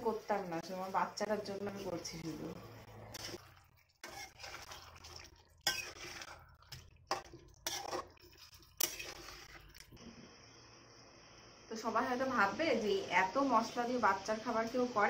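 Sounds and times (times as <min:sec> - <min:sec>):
metal spoon scraping a wok: 0:02.7 - 0:09.8.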